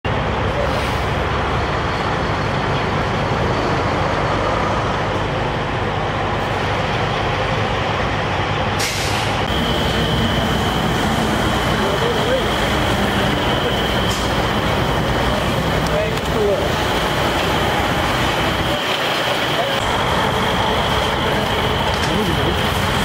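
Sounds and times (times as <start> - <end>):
diesel trucks idling: 0.0 - 23.0
short burst of hiss: 8.8 - 9.4.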